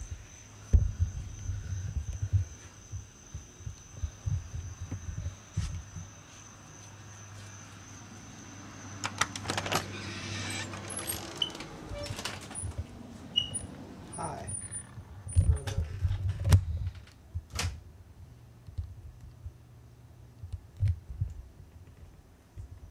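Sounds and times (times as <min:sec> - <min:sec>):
metallic clicks and rattles of doors: 0:09.0 - 0:12.8.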